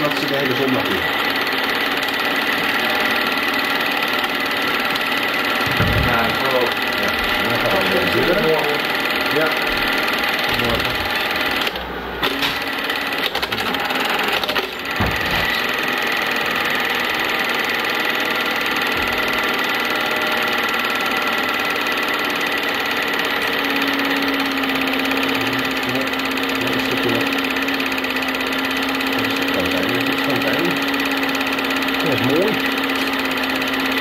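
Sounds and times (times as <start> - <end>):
film projector clatter: 0.0 - 34.0.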